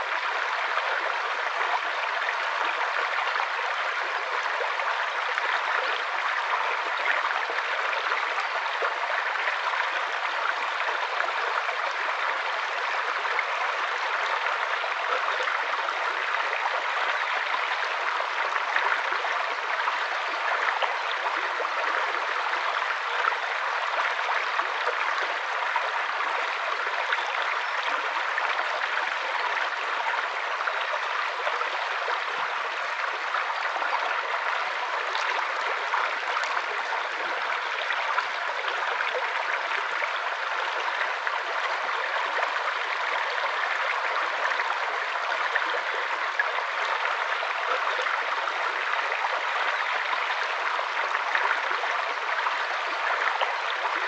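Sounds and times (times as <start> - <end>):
stream flowing over stones: 0.0 - 54.0.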